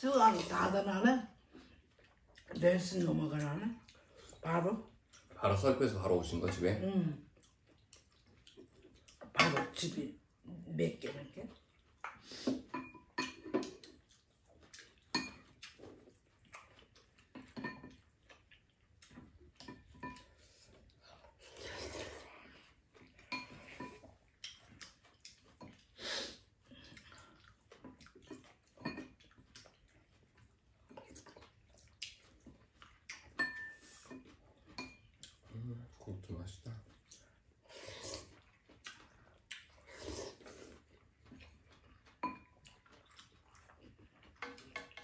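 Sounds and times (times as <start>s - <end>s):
utensils clinking against ceramic bowls: 9.3s - 9.9s, 12.6s - 13.8s, 15.1s - 15.5s, 17.3s - 18.0s, 19.6s - 20.4s, 23.2s - 24.0s, 28.3s - 29.2s, 33.3s - 35.1s, 42.1s - 42.6s.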